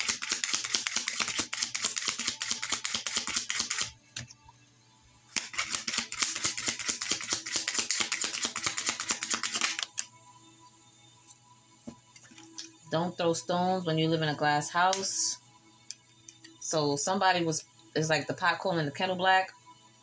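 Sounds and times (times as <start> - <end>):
cards being shuffled: 0.0 - 3.9, 5.4 - 10.1.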